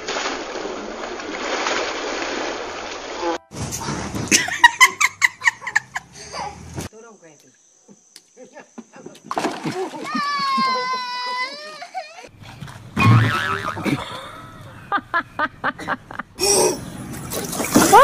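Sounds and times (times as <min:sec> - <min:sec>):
child laughing: 0:04.4 - 0:06.6, 0:09.8 - 0:12.3.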